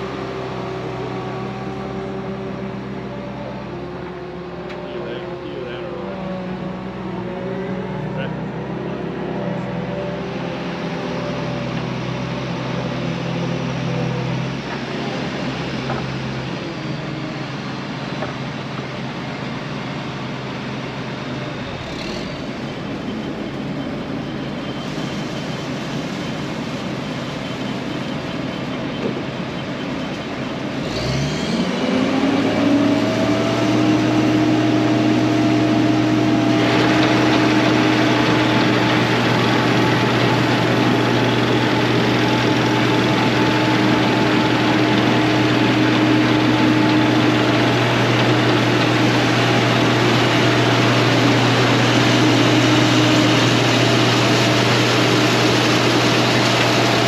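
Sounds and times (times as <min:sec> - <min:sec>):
combine diesel engine running: 0:00.0 - 0:57.0.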